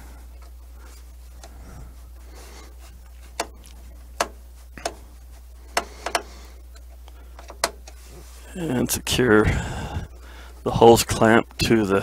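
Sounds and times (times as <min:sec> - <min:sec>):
sharp clicks of switch handling: 0:03.3 - 0:05.1, 0:05.7 - 0:08.0.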